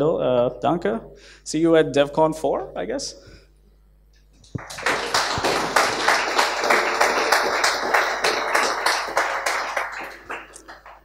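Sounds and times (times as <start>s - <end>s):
audience applauding: 4.4s - 11.0s.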